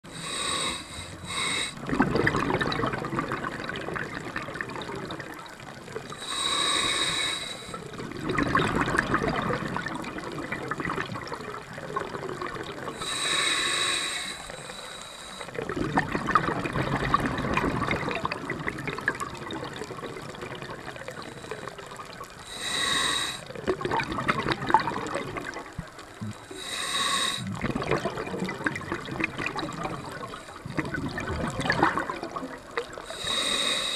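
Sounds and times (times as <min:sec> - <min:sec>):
bubbling exhale: 0:00.0 - 0:33.9
regulator inhale hiss: 0:00.1 - 0:01.8, 0:06.2 - 0:07.9, 0:13.0 - 0:15.6, 0:21.1 - 0:23.6, 0:26.2 - 0:27.5, 0:33.1 - 0:33.9.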